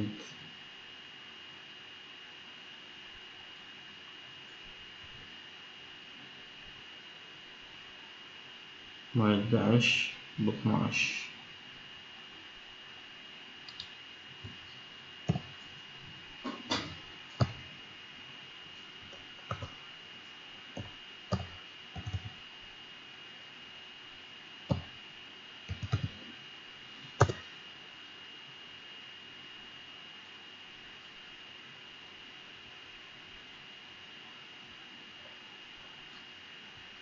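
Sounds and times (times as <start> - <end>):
faint high whine: 0.0 - 37.0
keyboard keys clicking: 19.5 - 19.7, 21.3 - 22.4, 25.7 - 26.2, 27.2 - 27.4.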